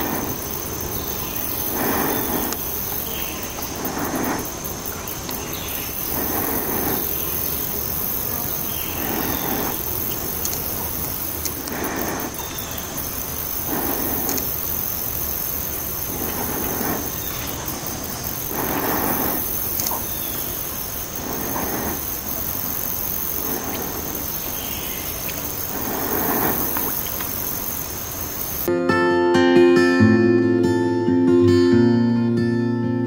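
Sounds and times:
high-pitched insect drone: 0.0 - 28.7.

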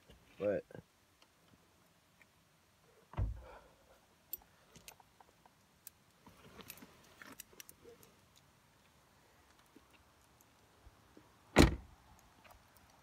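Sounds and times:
car door thump: 3.2 - 3.5, 11.6 - 11.8.

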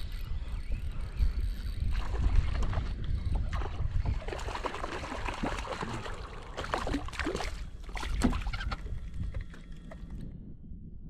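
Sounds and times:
wind rumble on microphone: 0.0 - 11.0
water splashing beside kayak: 1.9 - 10.2.

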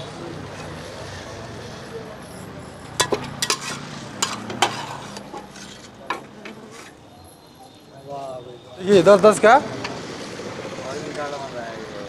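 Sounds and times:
metal spatula scraping and clinking: 2.8 - 7.0.

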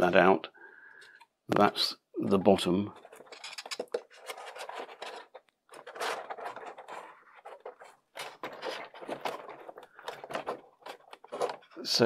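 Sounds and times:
plastic scraping against plastic: 2.9 - 12.0.

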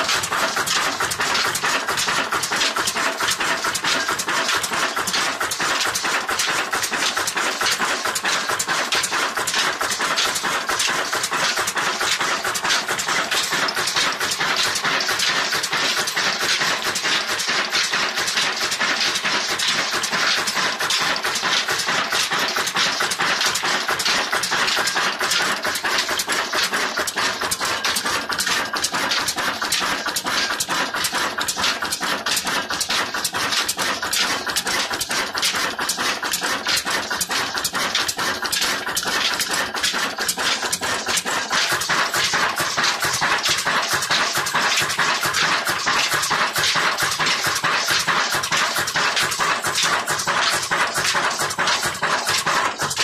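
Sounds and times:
diesel engine mechanical clatter: 0.0 - 53.0.

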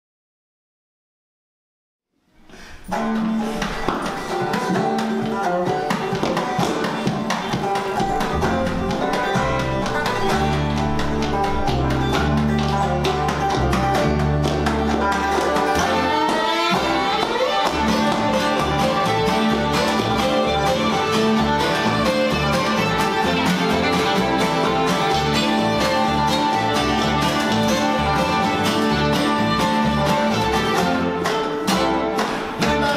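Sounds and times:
bluegrass band playing: 2.6 - 32.9
deep upright bass notes: 6.4 - 31.2.

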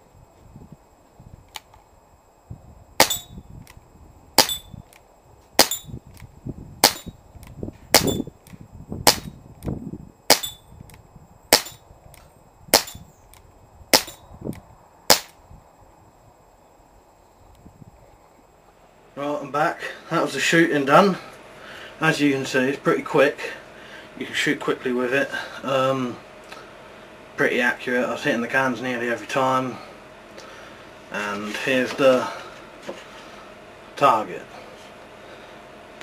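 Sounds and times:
pellet revolver shots: 3.0 - 3.3, 4.4 - 4.7, 5.6 - 5.9, 6.8 - 7.1, 8.0 - 8.2, 9.1 - 9.3, 10.3 - 10.6, 11.5 - 11.8, 12.7 - 13.0, 13.9 - 14.2, 15.1 - 15.4.

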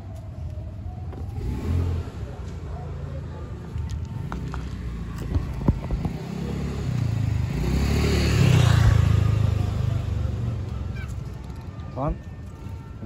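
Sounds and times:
vehicle passing by: 1.2 - 11.4.

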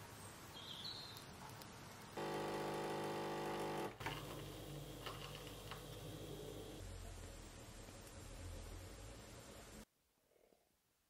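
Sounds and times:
coffee machine pump buzzing: 2.2 - 6.8
faint hum: 2.2 - 7.0.

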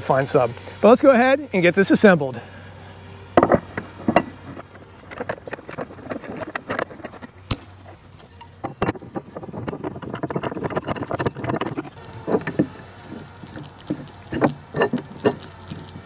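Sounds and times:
steel legs knocking and clicking: 3.4 - 16.0.

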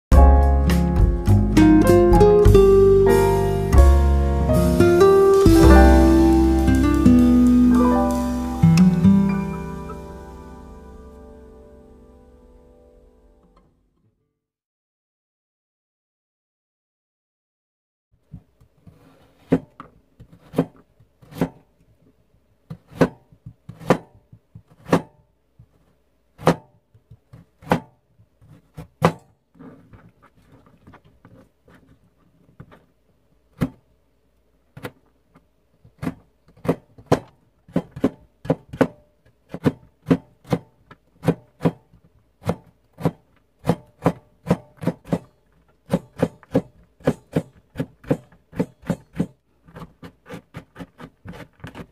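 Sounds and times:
knife chopping carrot on cutting board: 19.0 - 21.6, 22.7 - 25.2, 26.4 - 29.3, 35.9 - 51.9.

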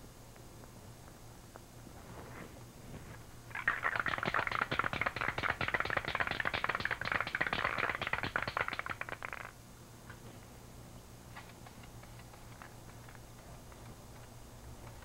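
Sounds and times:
spray can rattling when shaken: 3.5 - 9.6.

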